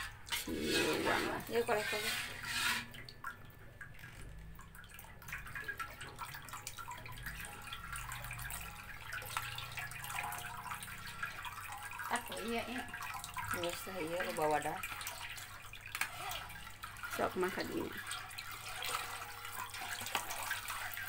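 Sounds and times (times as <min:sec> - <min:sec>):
spoon scraping a sieve: 0:00.0 - 0:03.0, 0:15.0 - 0:17.0.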